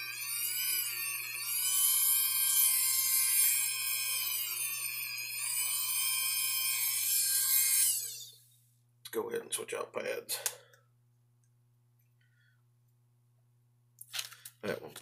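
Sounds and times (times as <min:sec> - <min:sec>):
rotary tool whine on metal: 0:00.0 - 0:08.5.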